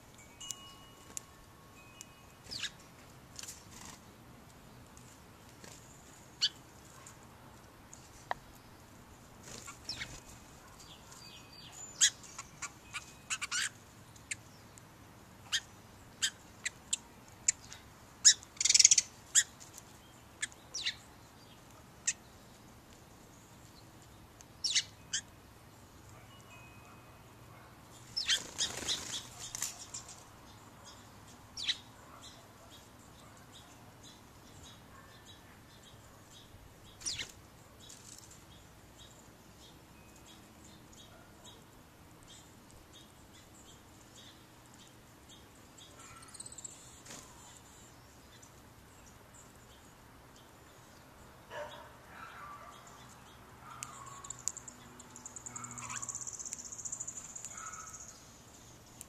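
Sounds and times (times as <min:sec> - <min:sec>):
faint birdsong: 0:00.0 - 0:59.0
sparrows ticking: 0:00.0 - 0:59.0
wing flutter: 0:09.4 - 0:10.6, 0:28.2 - 0:30.3.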